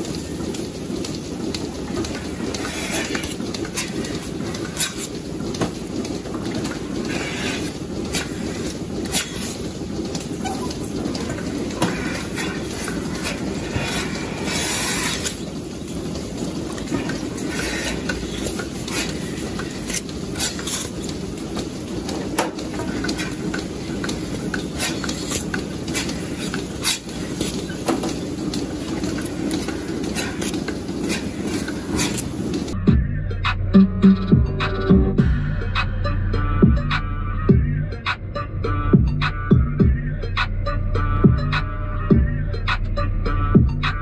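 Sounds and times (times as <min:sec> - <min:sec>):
metal clicks and clanks: 0:00.0 - 0:32.8
milking machinery running: 0:00.0 - 0:37.2.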